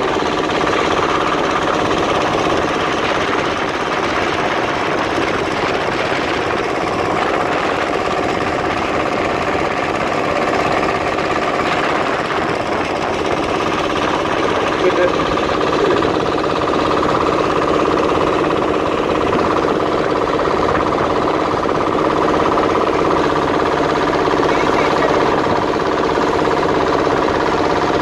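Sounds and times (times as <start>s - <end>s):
boat engine running: 0.0s - 28.0s.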